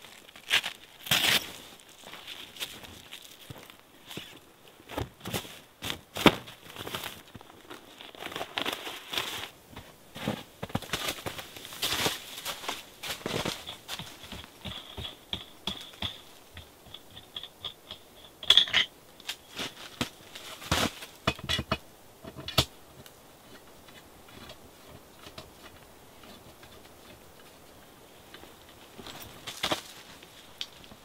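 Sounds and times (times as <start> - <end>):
metal tent pole clicking and clacking: 13.4 - 20.2, 21.2 - 22.7.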